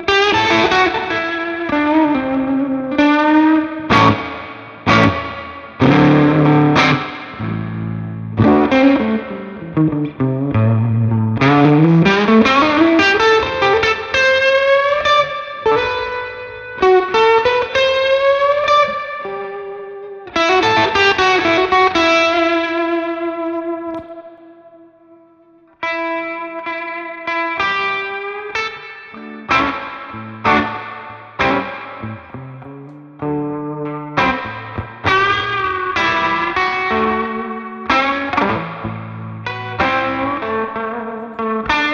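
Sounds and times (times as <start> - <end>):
electric guitar blues-rock lines: 0.0 - 41.9.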